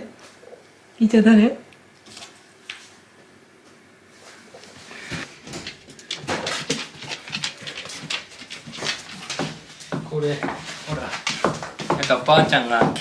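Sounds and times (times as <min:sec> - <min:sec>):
scuffs and knocks of movement: 0:04.1 - 0:13.0
dog claws clicking on wooden floor: 0:05.5 - 0:13.0.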